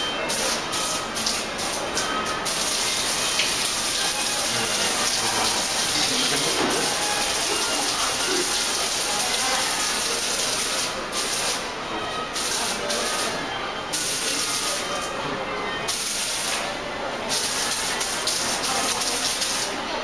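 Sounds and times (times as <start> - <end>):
fountain water splashing on pebbles: 2.5 - 11.5, 17.4 - 19.7.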